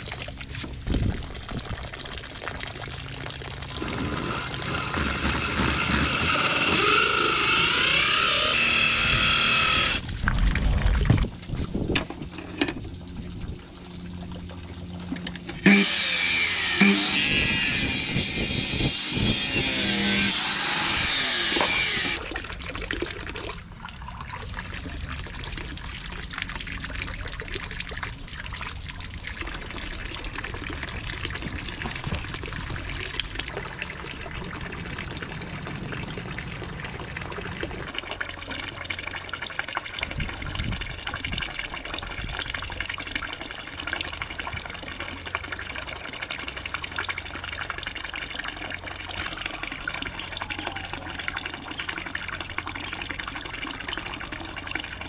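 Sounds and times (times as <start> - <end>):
water pouring and splashing: 0.0 - 55.0
miter saw cutting bamboo: 3.8 - 10.0, 15.5 - 22.2.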